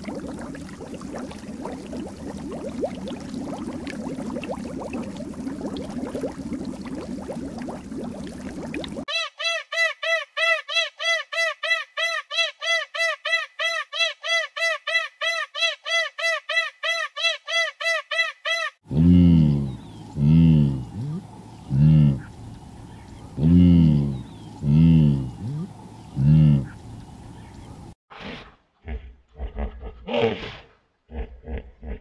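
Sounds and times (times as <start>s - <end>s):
low outdoor hum: 18.9s - 28.0s.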